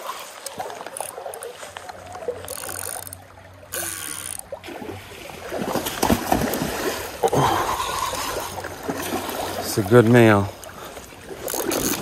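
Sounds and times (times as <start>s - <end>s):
river water: 0.0s - 12.0s
fishing reel drag buzzing: 0.8s - 4.6s, 11.4s - 12.0s.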